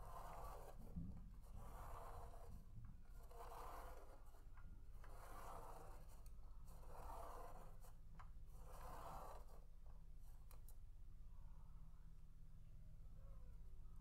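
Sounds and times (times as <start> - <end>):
pen scratching on paper: 0.0 - 9.6
faint low hum: 0.0 - 14.0.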